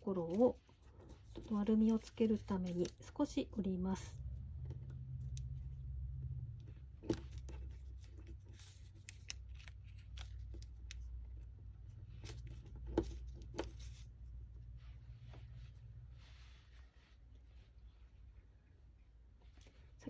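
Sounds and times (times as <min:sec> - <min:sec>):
paper rustling and crackling: 0:00.0 - 0:03.3, 0:07.0 - 0:14.2
steady low hum: 0:00.6 - 0:20.0.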